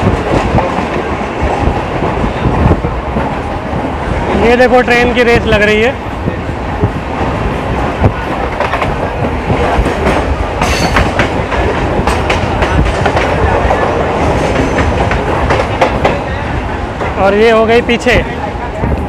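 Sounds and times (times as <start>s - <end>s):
train rumbling at speed: 0.0s - 19.0s
wheels clicking over rail joints: 8.1s - 16.4s.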